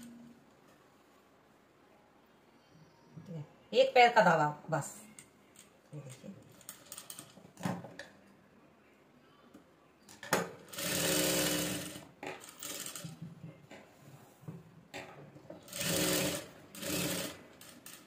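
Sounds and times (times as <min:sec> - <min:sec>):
sewing machine stitching: 0:10.7 - 0:13.2, 0:15.6 - 0:18.0.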